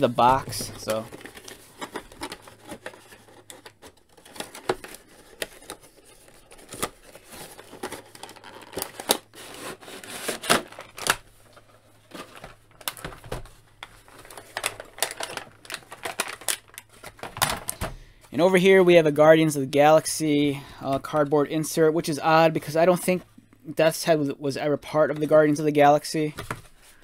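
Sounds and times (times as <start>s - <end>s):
plastic packaging crinkling: 0.0s - 17.8s.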